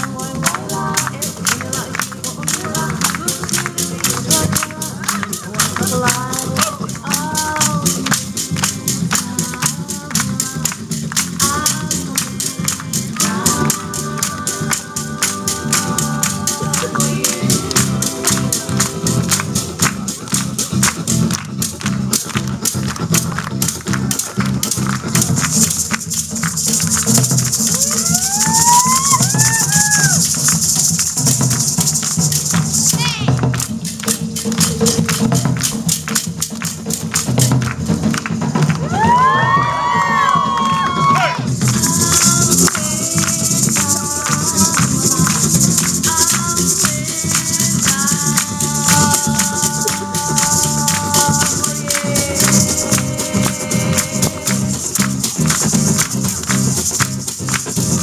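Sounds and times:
rattling shakers: 0:00.0 - 0:40.0, 0:40.6 - 0:58.0
fast driving percussion: 0:00.0 - 0:58.0
hula music with low beat: 0:00.0 - 0:58.0
gourd rattles shaking: 0:23.4 - 0:33.2, 0:41.6 - 0:58.0.

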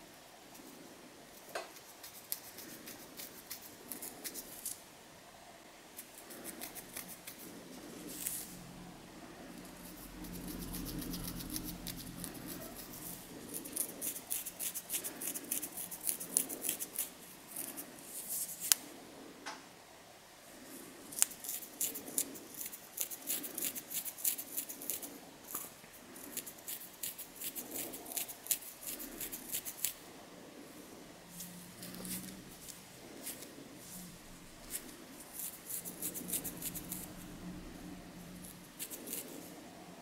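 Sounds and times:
fingernails scratching scalp: 0:01.7 - 0:04.8, 0:06.0 - 0:08.5, 0:09.8 - 0:18.8, 0:21.2 - 0:25.1, 0:26.2 - 0:30.0, 0:34.6 - 0:37.1, 0:38.7 - 0:39.4.

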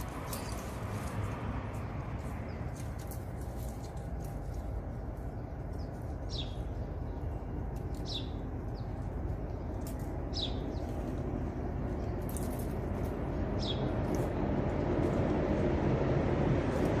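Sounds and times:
low outdoor rumble: 0:00.0 - 0:17.0
bird chirping: 0:04.3 - 0:14.3.

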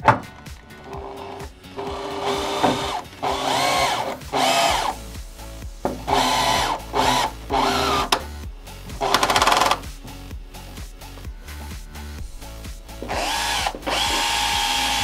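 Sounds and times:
power drill bursts: 0:00.9 - 0:05.0, 0:06.1 - 0:08.2, 0:09.0 - 0:09.8, 0:13.0 - 0:15.0.

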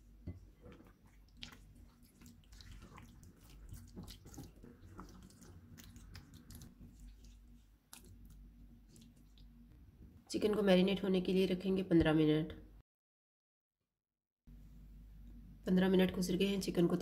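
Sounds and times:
wet squelching of meat: 0:00.5 - 0:09.6.

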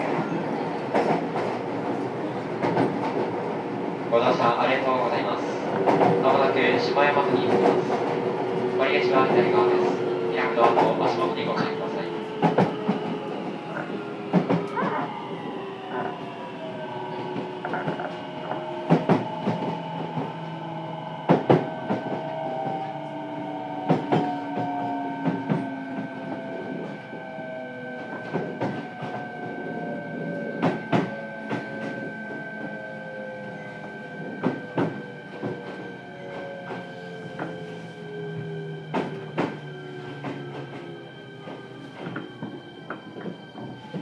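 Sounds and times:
steady high tone: 0:08.5 - 0:43.3.

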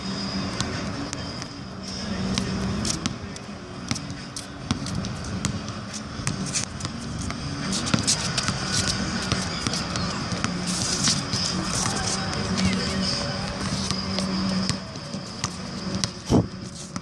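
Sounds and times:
basketball bouncing on hard court: 0:03.9 - 0:17.0.

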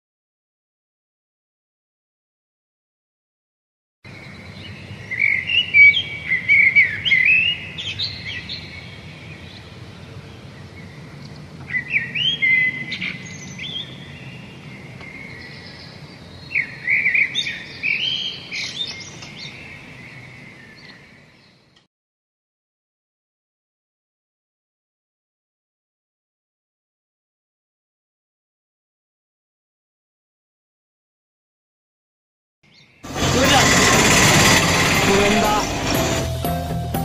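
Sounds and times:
low background hum: 0:04.1 - 0:21.4
birds chirping: 0:04.1 - 0:21.8.

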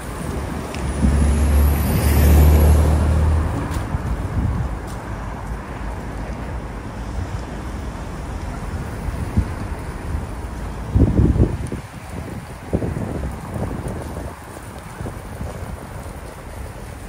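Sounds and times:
traffic noise: 0:00.0 - 0:17.0
vehicle engine passing by: 0:00.7 - 0:04.6.

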